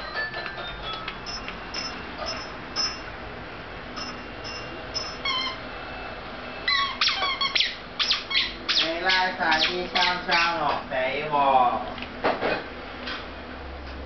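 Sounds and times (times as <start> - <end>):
squeaky shoes chirping: 0.0 - 3.1, 4.0 - 5.7, 6.6 - 10.6.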